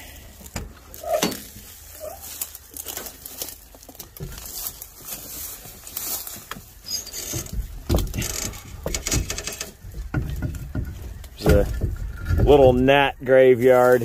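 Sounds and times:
glass clicking and rattling: 0:06.9 - 0:12.7
knocks: 0:07.4 - 0:12.8.

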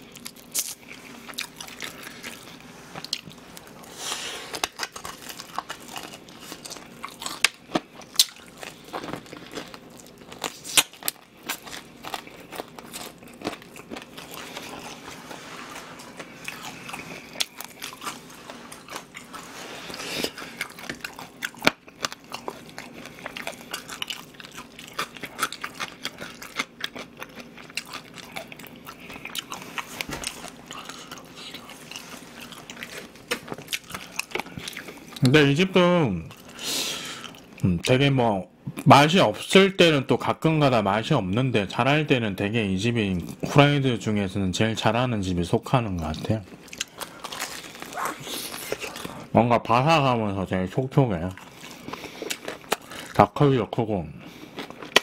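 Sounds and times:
crunching fried chicken: 0:00.0 - 0:35.6, 0:46.0 - 0:55.0
chewing: 0:00.1 - 0:35.3, 0:46.1 - 0:49.3, 0:51.3 - 0:53.2, 0:54.2 - 0:55.0.

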